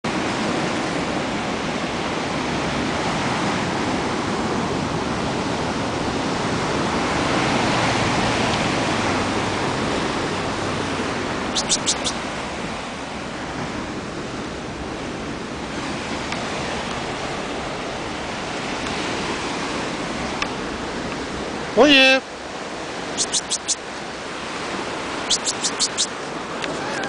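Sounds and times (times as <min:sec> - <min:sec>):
quick sharp clicks: 0:11.6 - 0:12.2, 0:23.2 - 0:23.8, 0:25.3 - 0:26.1.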